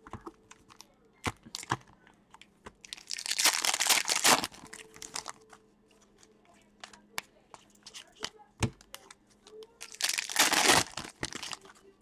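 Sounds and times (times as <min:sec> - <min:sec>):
foil wrapper tearing and crinkling: 0:02.9 - 0:05.4, 0:09.8 - 0:11.8.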